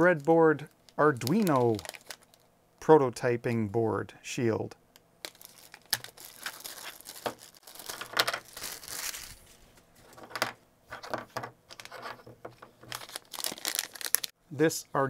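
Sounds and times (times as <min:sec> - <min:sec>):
plastic bags crinkling: 0:00.8 - 0:02.5, 0:05.2 - 0:10.3, 0:11.7 - 0:14.4.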